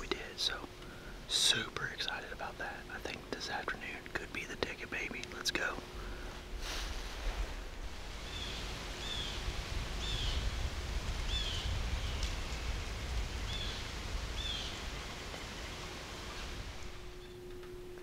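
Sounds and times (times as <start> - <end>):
low rumble: 5.8 - 18.0
rustle of woods: 5.8 - 18.0
songbird chirping: 8.0 - 12.4, 13.3 - 18.0.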